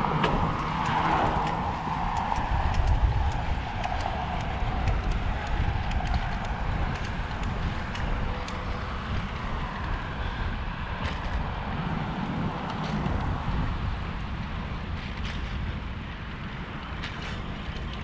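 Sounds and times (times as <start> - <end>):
wheels clicking over joints: 0.0 - 18.0
wheels rolling on concrete: 0.0 - 18.0
wind buffeting microphone: 0.0 - 18.0.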